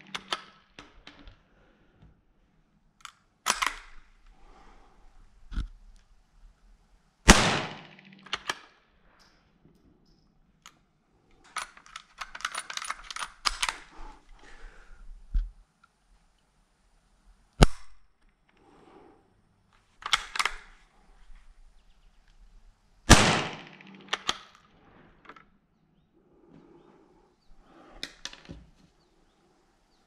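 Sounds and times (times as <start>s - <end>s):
rifle bolt metallic clicks: 0.0s - 1.4s, 3.0s - 4.0s, 7.4s - 9.4s, 11.4s - 13.9s, 20.0s - 20.8s, 23.1s - 24.7s
rifle shot: 7.3s - 8.6s, 23.1s - 24.4s.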